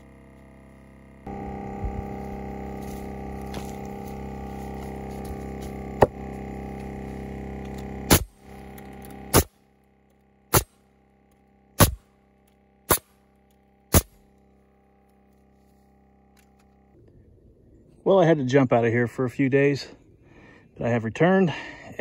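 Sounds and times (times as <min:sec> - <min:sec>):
air compressor running: 0:00.0 - 0:17.0
nail gun shots: 0:08.1 - 0:08.4, 0:09.3 - 0:09.6, 0:10.5 - 0:10.8, 0:11.8 - 0:12.0, 0:12.9 - 0:13.1, 0:13.9 - 0:14.2.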